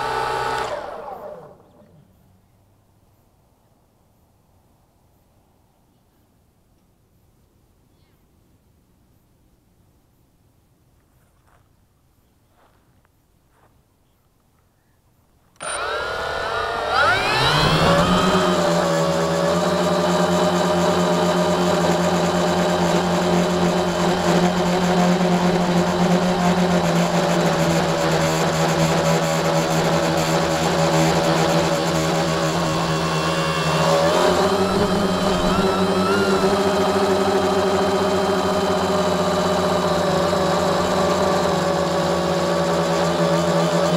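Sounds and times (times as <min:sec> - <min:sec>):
drone motors whirring: 0:00.0 - 0:01.8, 0:15.6 - 0:43.9.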